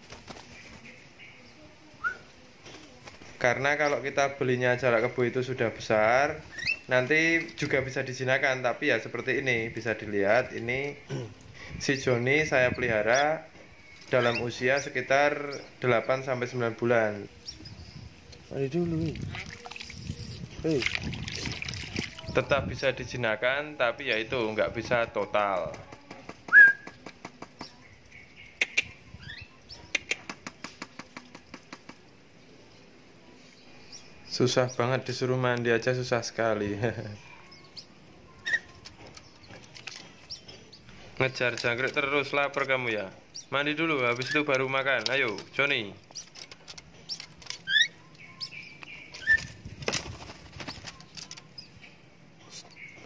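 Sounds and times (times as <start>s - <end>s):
bird chirps and whistles: 2.0s - 2.3s, 6.5s - 6.8s, 26.5s - 26.9s, 47.6s - 49.6s
bird whistle: 2.0s - 2.3s, 26.5s - 26.9s
bird chirps: 6.4s - 7.6s, 12.4s - 16.4s, 37.2s - 41.4s, 45.4s - 49.7s, 50.6s - 53.0s
bird clicks: 28.6s - 29.0s, 29.9s - 32.1s
wings and feet tapping a metal cage: 29.9s - 32.0s.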